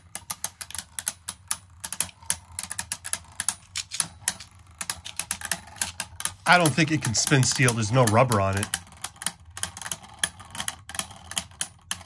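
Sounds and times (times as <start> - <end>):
spinning tops clicking together: 0.0 - 12.0.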